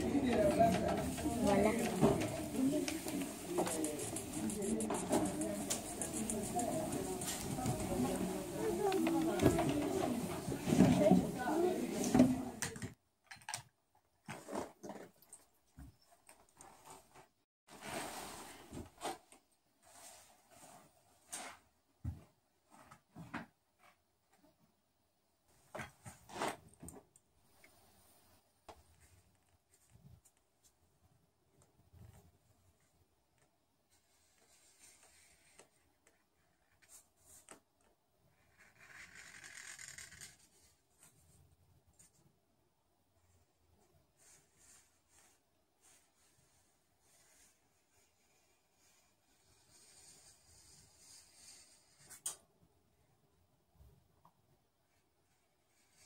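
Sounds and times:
marker pen scratching: 0:01.4 - 0:10.0, 0:47.1 - 0:52.3.

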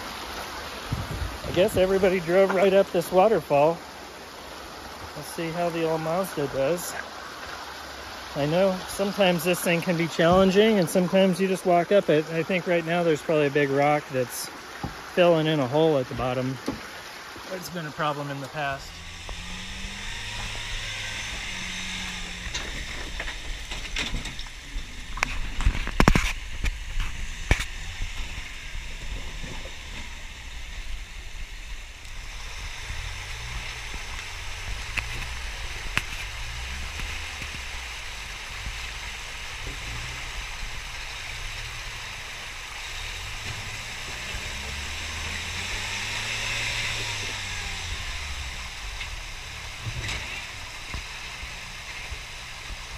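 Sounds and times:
waterfall rushing water: 0:00.0 - 0:52.9
pickup truck engine revving: 0:18.5 - 0:52.9.

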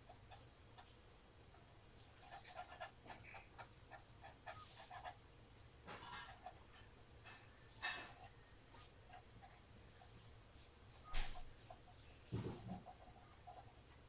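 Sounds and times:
pencil scratching on paper: 0:02.1 - 0:05.2.

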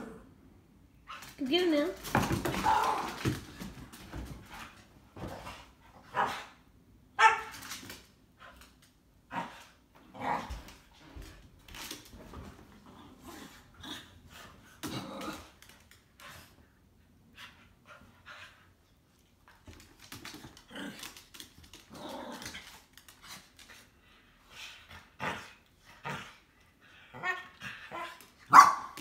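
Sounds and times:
dogs barking in play: 0:06.0 - 0:07.8, 0:27.1 - 0:29.0.

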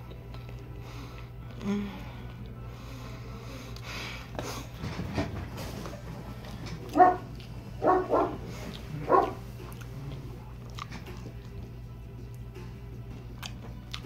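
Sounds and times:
small dog barking: 0:06.9 - 0:08.4, 0:09.0 - 0:09.4.

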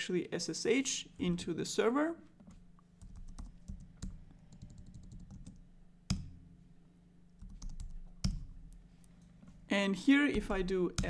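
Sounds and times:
typing on computer keyboard: 0:03.0 - 0:05.6, 0:07.4 - 0:08.4.

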